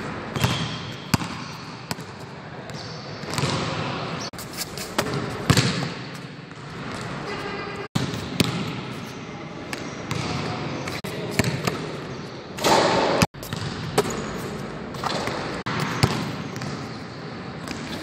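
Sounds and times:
basketball bouncing on gym floor: 0.2 - 3.8, 5.0 - 9.0, 9.7 - 10.6, 11.4 - 14.4, 15.0 - 17.0.

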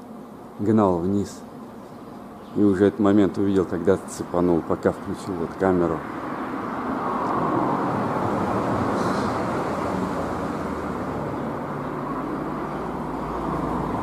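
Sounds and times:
outdoor background rumble: 4.1 - 14.0.

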